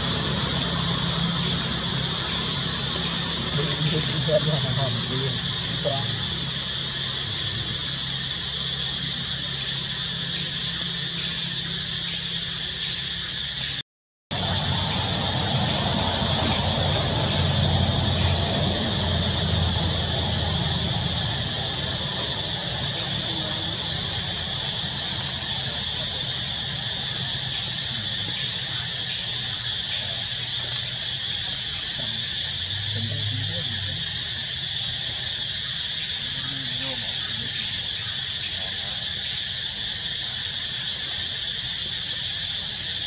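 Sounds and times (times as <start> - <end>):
low hum: 0.0 - 12.8, 14.3 - 28.6
low steady rumble: 0.0 - 12.8, 14.3 - 31.9
high-pitched hiss: 0.0 - 43.0
insects chirring: 0.0 - 43.0.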